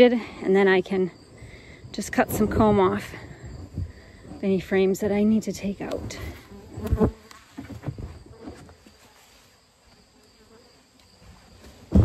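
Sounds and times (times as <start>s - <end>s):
insects buzzing and chirring: 0.0s - 12.0s
bumps and rustles: 5.7s - 9.5s, 11.2s - 12.0s.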